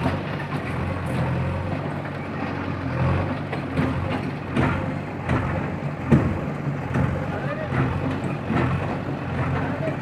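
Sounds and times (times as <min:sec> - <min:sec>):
diesel engine under load: 0:00.0 - 0:10.0.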